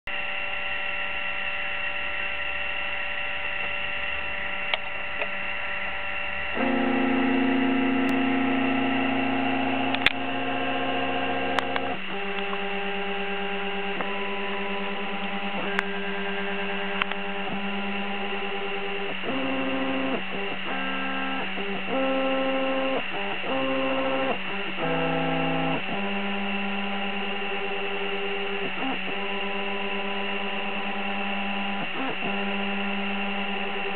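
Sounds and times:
electrical hum and high whine: 0.1 - 33.9
stepper motors whining: 0.4 - 33.9
faint clicks: 9.9 - 10.2, 17.0 - 17.3.

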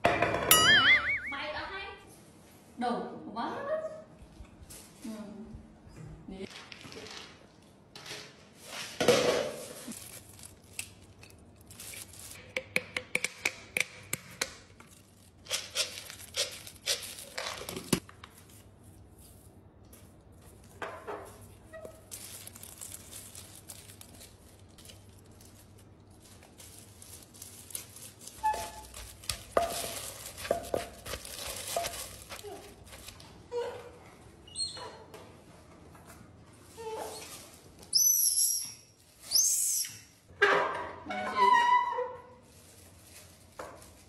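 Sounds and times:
clicks and crinkles of handling: 14.6 - 33.4
wooden pestle pounding in mortar: 29.0 - 32.5.

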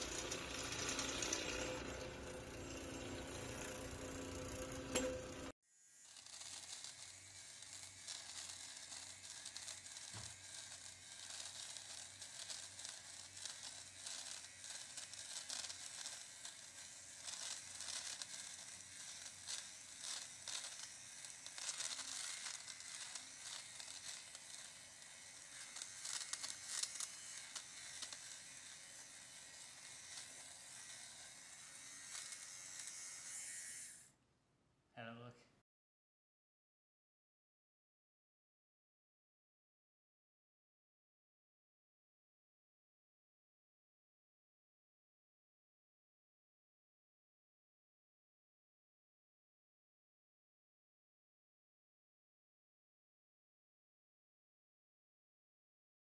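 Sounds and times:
lint remover scratchy buzz: 0.0 - 34.1.

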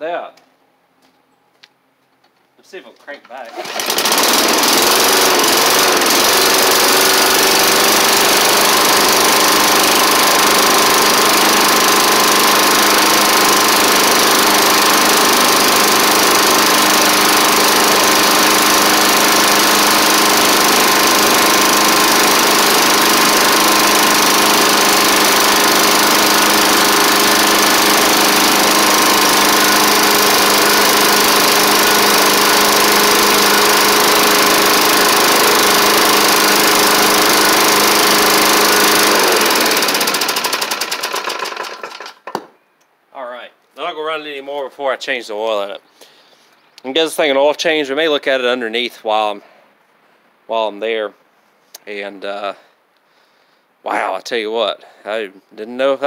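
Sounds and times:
person talking: 2.6 - 3.6, 53.8 - 56.0
lawn mower engine running: 3.4 - 42.5.

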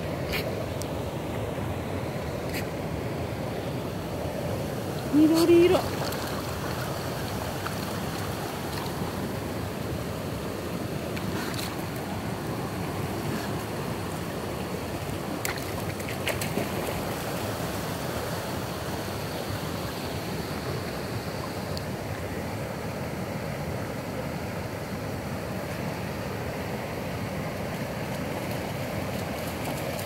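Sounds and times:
stream water running over rocks: 3.6 - 22.8, 26.1 - 30.0.

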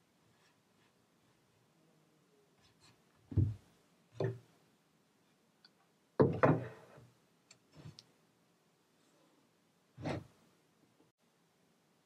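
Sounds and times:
wooden knocks: 3.3 - 3.6, 6.2 - 6.8.

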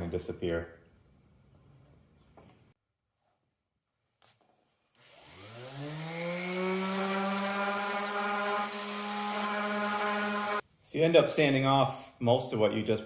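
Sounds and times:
orbital sander whine: 5.0 - 10.6.

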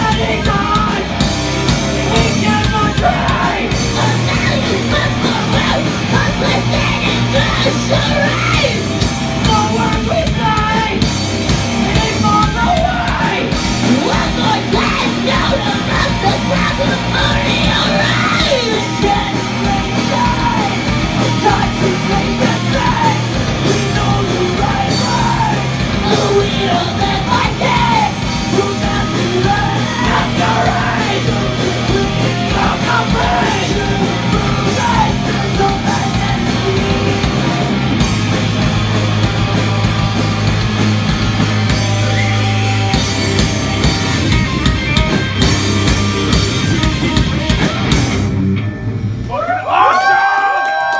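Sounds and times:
heavy rock band playing live: 0.0 - 50.8
shouted vocals: 2.0 - 11.1, 11.8 - 37.6, 49.3 - 50.9.

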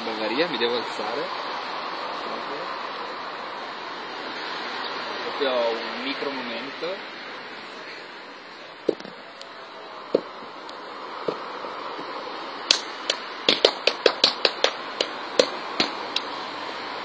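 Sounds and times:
hand slaps and claps: 12.7 - 16.3.

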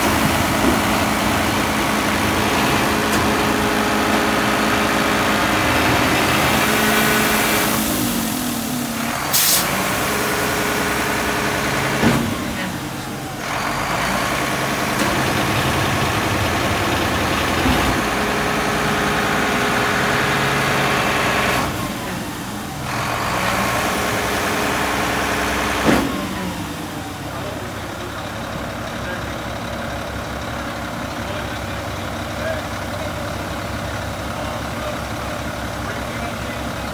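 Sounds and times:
garbage truck engine and hydraulics: 0.0 - 36.9
air hiss: 9.3 - 9.7.

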